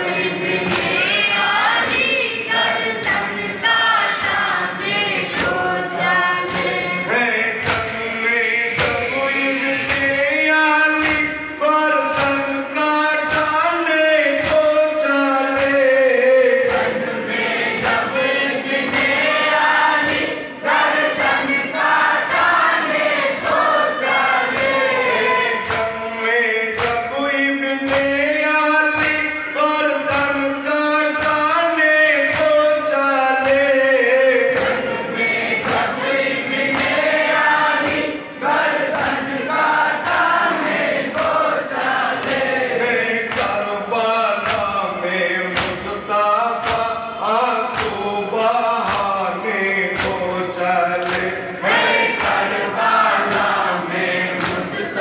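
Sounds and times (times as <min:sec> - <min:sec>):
group chanting: 0:00.0 - 0:55.0
hands slapping chests: 0:00.6 - 0:02.1, 0:06.5 - 0:06.9, 0:07.6 - 0:08.0, 0:11.0 - 0:11.4, 0:16.6 - 0:20.3, 0:26.7 - 0:27.1, 0:27.8 - 0:28.1, 0:32.3 - 0:32.6, 0:35.5 - 0:41.5, 0:42.1 - 0:42.6, 0:43.3 - 0:43.6, 0:44.4 - 0:44.7, 0:45.5 - 0:45.9, 0:46.6 - 0:46.9, 0:47.6 - 0:48.1, 0:48.8 - 0:50.3, 0:50.9 - 0:53.6, 0:54.3 - 0:54.8.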